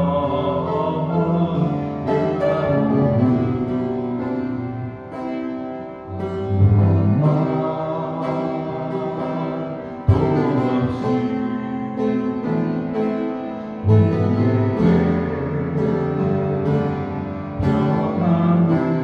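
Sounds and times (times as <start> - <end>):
upright piano playing chords: 0.0 - 19.0.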